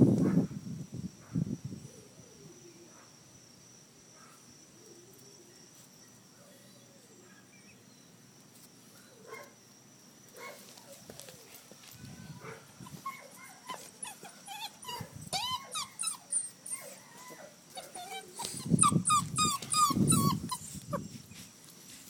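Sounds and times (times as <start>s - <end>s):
puppy whining and yipping: 12.4s - 21.4s.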